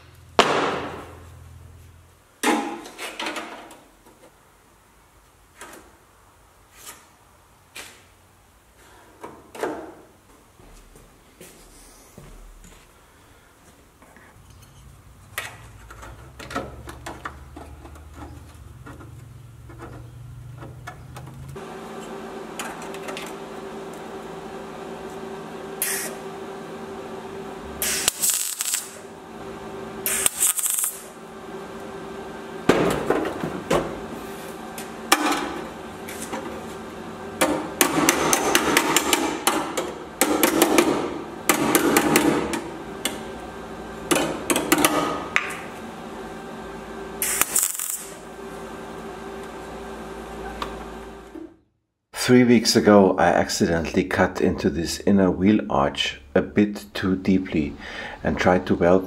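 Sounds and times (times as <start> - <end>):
welding arc crackle: 25.8 - 26.2, 27.7 - 29.2, 30.0 - 31.2, 47.2 - 48.3
hammer striking sheet steel: 37.4 - 42.5.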